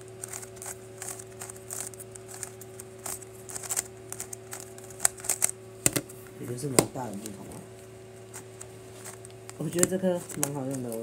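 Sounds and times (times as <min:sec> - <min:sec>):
steady low hum: 0:00.0 - 0:11.0
puzzle cube clicking as turned: 0:00.2 - 0:06.0.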